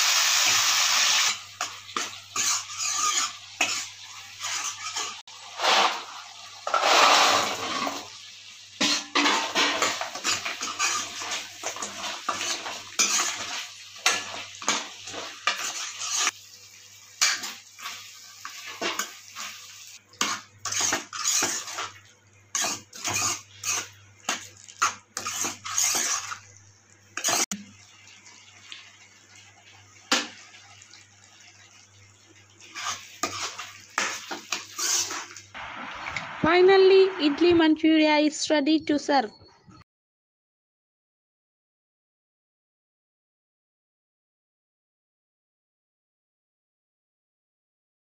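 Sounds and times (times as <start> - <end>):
spatula scraping a pan: 0.1 - 8.2, 8.8 - 16.4, 17.2 - 26.5, 27.2 - 27.5, 32.6 - 35.5.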